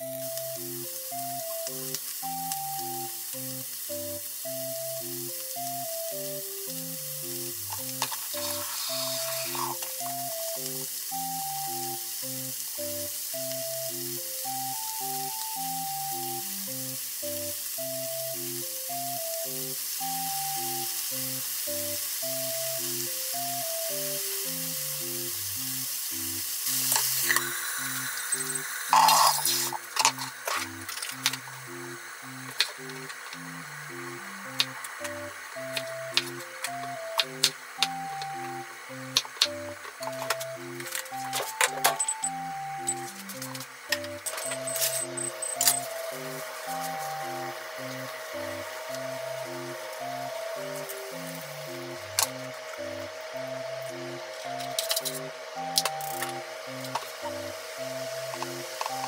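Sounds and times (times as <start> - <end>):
food sizzling in a frying pan: 0.0 - 59.0
pan clatter: 28.4 - 31.4.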